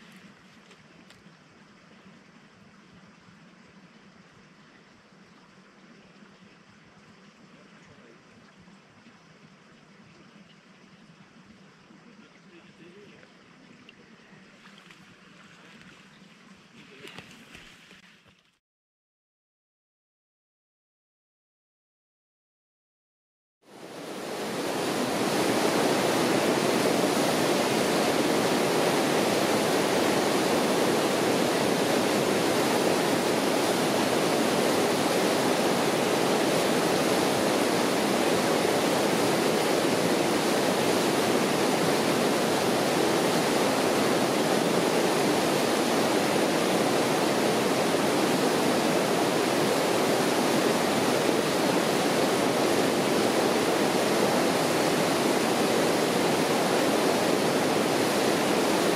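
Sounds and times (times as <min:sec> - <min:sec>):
river rapids roaring over rocks: 0:23.8 - 0:58.9.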